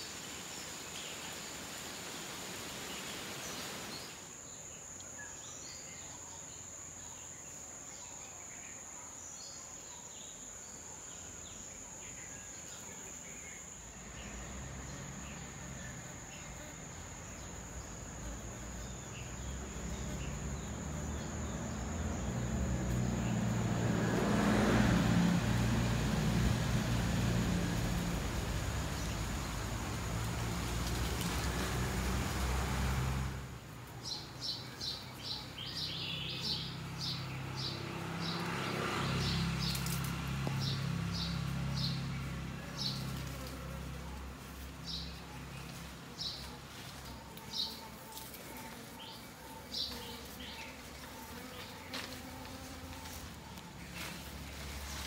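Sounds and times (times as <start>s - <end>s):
honeybees buzzing: 12.6s - 55.0s
small birds chirping: 33.8s - 55.0s.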